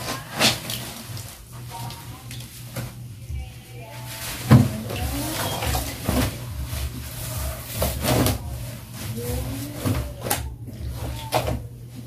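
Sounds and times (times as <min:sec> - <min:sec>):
clothes hand-washed in soapy water: 0:00.0 - 0:03.0.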